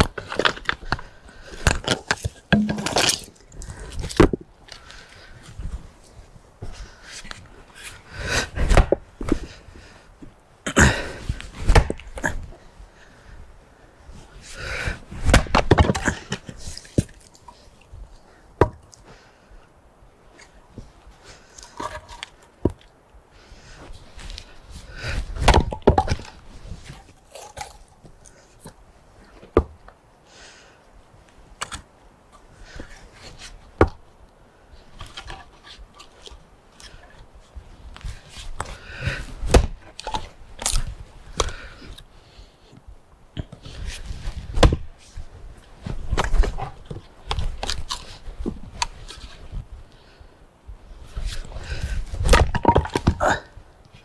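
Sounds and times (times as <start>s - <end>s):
axe splitting firewood: 1.6s - 4.4s, 8.6s - 9.5s, 10.7s - 12.3s, 15.2s - 17.2s, 25.4s - 26.4s, 39.1s - 41.7s, 44.4s - 44.9s, 52.2s - 53.5s
split wood pieces knocking together: 1.6s - 4.4s, 11.7s - 12.3s, 15.3s - 17.3s, 25.4s - 26.4s, 39.5s - 41.6s, 44.6s - 44.9s, 52.2s - 53.5s.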